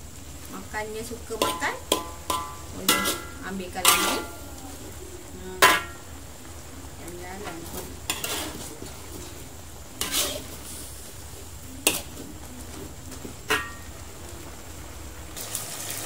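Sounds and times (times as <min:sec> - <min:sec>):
metal spatula scraping a wok: 0:01.3 - 0:05.0, 0:05.6 - 0:06.1, 0:07.4 - 0:12.9, 0:13.5 - 0:13.9.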